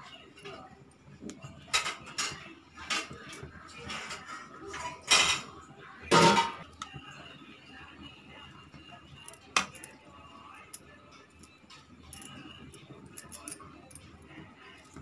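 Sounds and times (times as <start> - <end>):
utensil clinking dish: 1.6 - 5.5, 6.1 - 6.9, 9.2 - 15.0.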